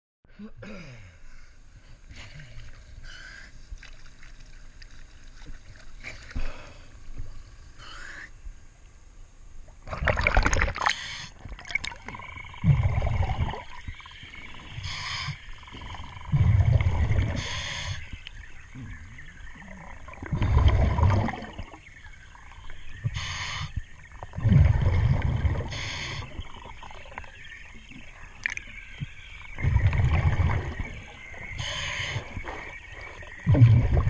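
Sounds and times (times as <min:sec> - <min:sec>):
water sloshing: 0:03.6 - 0:06.6, 0:09.8 - 0:23.1, 0:23.8 - 0:34.0
underwater bubbles rumbling: 0:09.8 - 0:34.0
regulator inhale hiss: 0:14.8 - 0:15.4, 0:17.4 - 0:18.1, 0:23.1 - 0:23.8, 0:25.7 - 0:26.4, 0:31.6 - 0:33.3.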